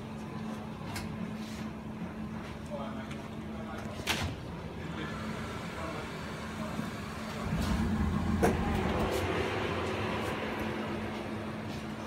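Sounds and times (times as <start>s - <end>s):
oven humming: 4.3s - 12.0s.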